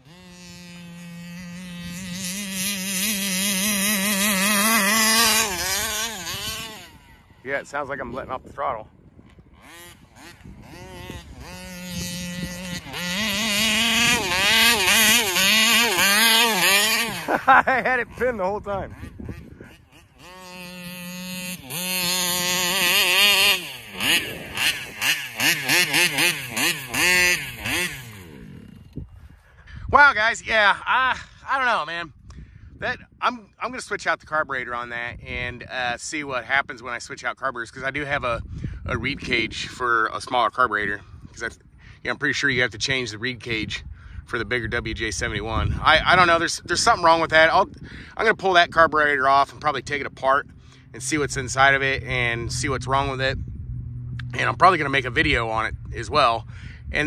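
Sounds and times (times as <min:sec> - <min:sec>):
model boat engine running flat out: 0:00.0 - 0:07.4, 0:09.5 - 0:17.5, 0:18.1 - 0:28.9.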